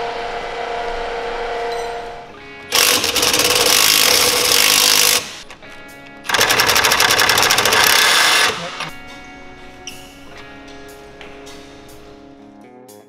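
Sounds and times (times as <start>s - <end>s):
background music: 0.0s - 13.0s
power tool rattling: 2.7s - 5.6s, 6.2s - 8.9s.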